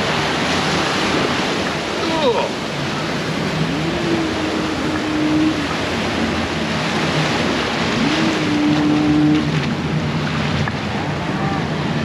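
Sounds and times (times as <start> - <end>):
rapids rushing water: 0.0 - 12.0.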